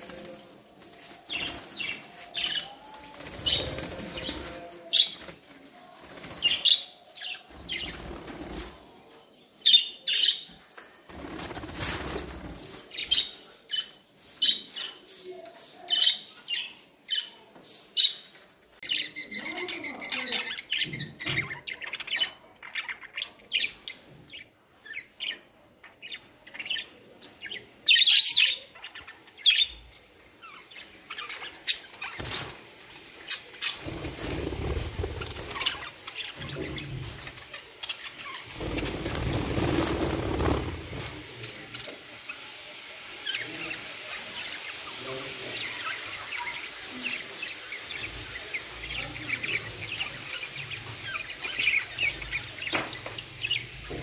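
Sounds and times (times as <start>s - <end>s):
wings flapping: 3.1s - 4.6s, 11.1s - 12.8s, 33.6s - 35.9s, 38.4s - 41.5s.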